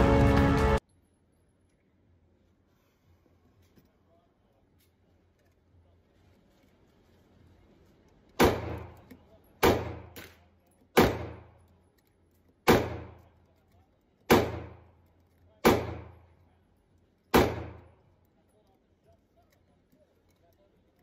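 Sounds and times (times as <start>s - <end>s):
pistol shots: 8.4s - 9.0s, 9.6s - 11.6s, 12.6s - 13.2s, 14.3s - 14.9s, 15.6s - 16.3s, 17.3s - 18.0s.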